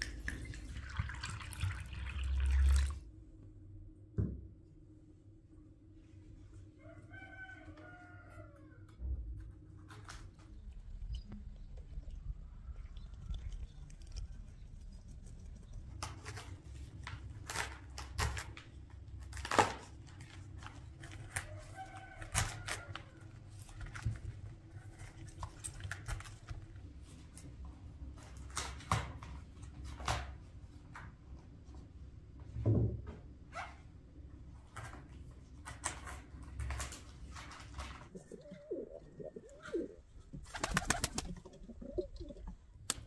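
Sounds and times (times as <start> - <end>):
low steady rumble: 8.8 - 17.4.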